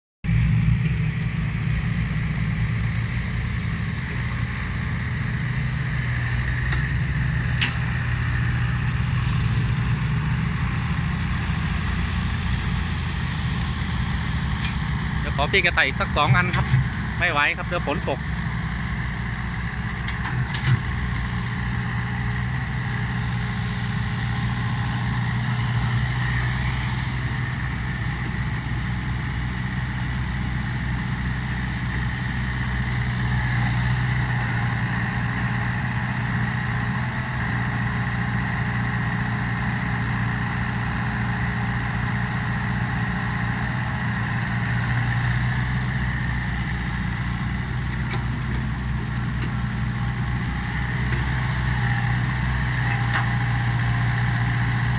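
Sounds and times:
excavator diesel engine running: 0.3s - 54.9s
dump truck engine idling: 0.4s - 54.9s.

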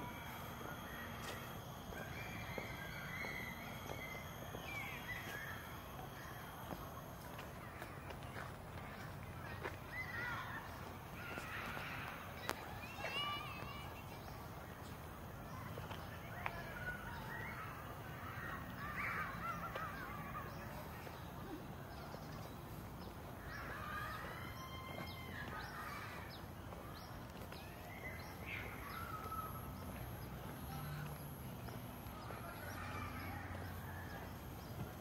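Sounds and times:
low steady hum: 0.0s - 22.1s
small birds chirping: 0.0s - 35.0s.

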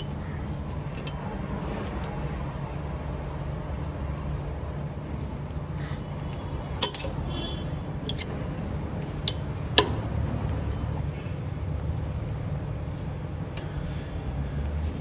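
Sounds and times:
steady low hum: 0.0s - 15.0s
socket wrench metallic clinks: 0.9s - 1.3s, 6.8s - 7.3s, 8.0s - 8.4s, 9.2s - 9.9s.

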